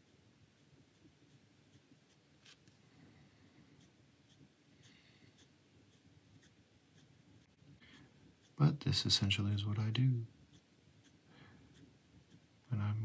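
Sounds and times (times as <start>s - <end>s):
ballpoint pen scratching on paper: 0.0s - 2.8s, 3.8s - 8.7s, 10.3s - 13.0s.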